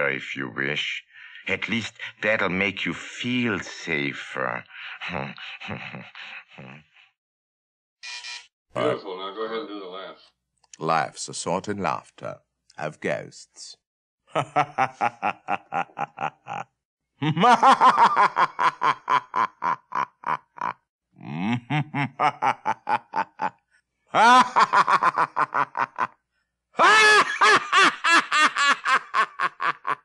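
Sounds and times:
man's theatrical ghost laugh: 5.0s - 6.9s, 14.3s - 23.5s, 24.1s - 26.2s, 26.8s - 30.0s.

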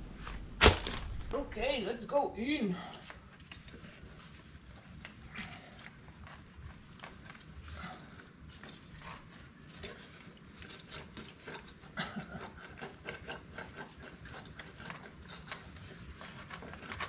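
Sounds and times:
drain cable scraping in pipe: 3.5s - 17.0s.

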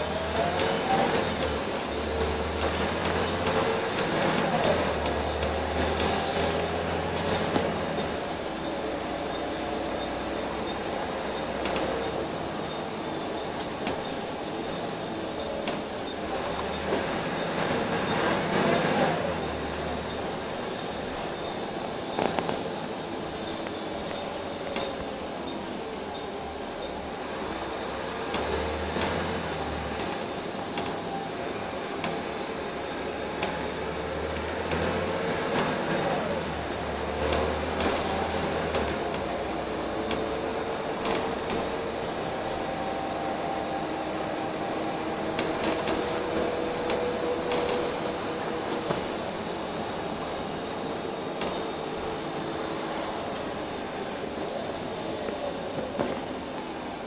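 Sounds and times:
bus engine and road drone: 0.0s - 57.0s
clicks and rattles from bus body: 0.4s - 8.3s, 10.4s - 19.0s, 22.1s - 22.8s, 23.5s - 25.7s, 28.1s - 31.2s, 31.9s - 32.4s, 33.3s - 36.3s, 37.1s - 43.8s, 44.4s - 54.1s.

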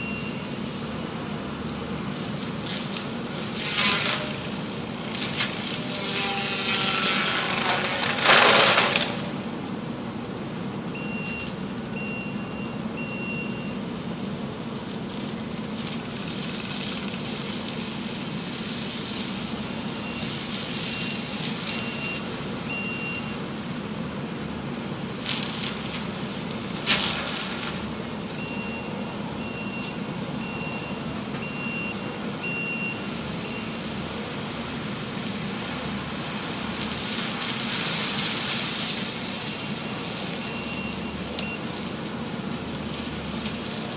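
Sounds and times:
backup alarm beeping: 0.0s - 0.6s, 10.9s - 13.8s, 28.3s - 33.8s, 39.5s - 41.7s
diesel engine drone: 0.0s - 43.9s.

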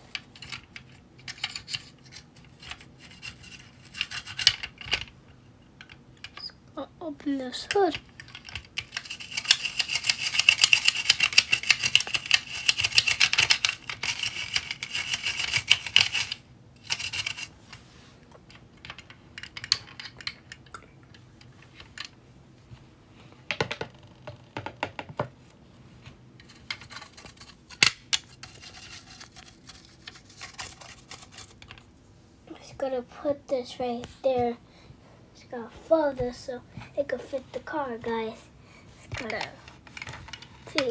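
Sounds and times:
scrapes and taps: 7.6s - 22.1s, 26.0s - 31.8s, 39.1s - 40.9s.

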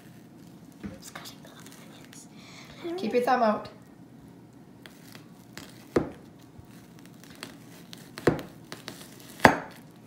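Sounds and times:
knife slicing onion: 4.9s - 9.8s.

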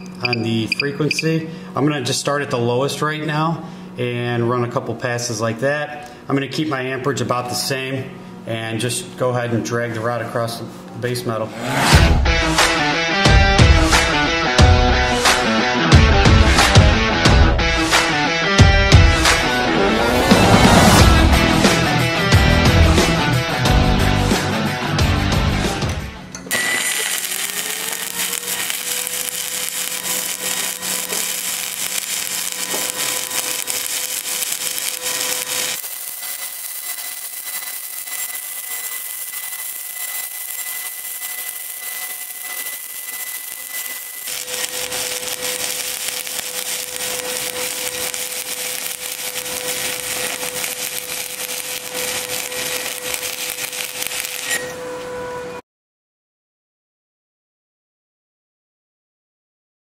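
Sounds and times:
welding arc crackling: 18.8s - 22.1s, 26.5s - 54.6s
thin steady whine: 26.5s - 54.8s.

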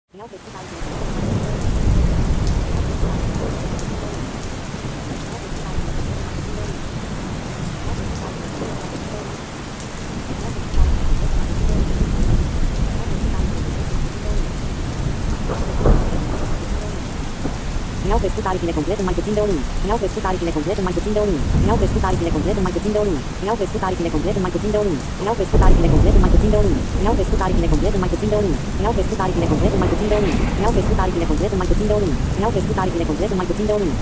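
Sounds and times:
steady rain: 0.2s - 34.0s
rolling thunder: 1.0s - 4.0s, 10.8s - 18.0s, 29.6s - 31.0s.

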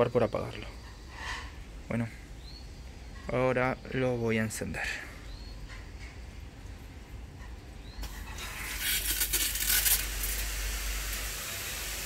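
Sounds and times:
sprinklers hissing: 8.0s - 12.0s.

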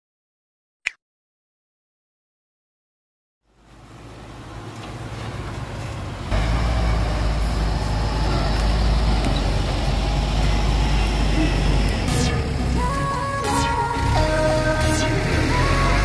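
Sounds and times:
truck engine rumbling: 3.5s - 16.0s.

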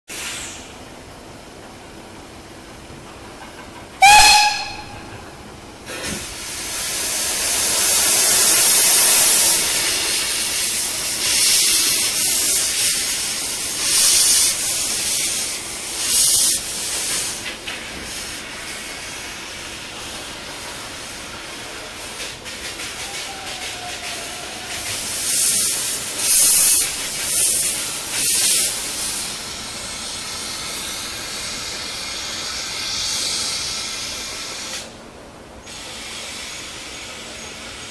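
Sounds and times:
steam hissing from cylinders: 0.1s - 2.9s, 3.9s - 37.9s
steam locomotive whistle: 4.0s - 6.0s, 22.9s - 25.7s.

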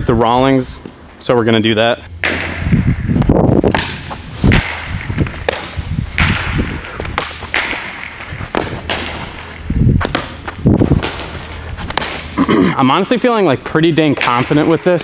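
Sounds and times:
low steady hum: 0.0s - 15.0s
ball bouncing off turf: 3.6s - 12.3s
baseball smacking into glove: 3.6s - 12.4s.

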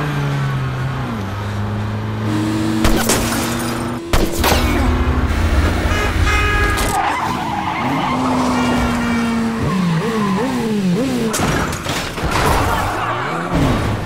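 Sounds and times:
tyres squealing and skidding: 5.9s - 14.0s.

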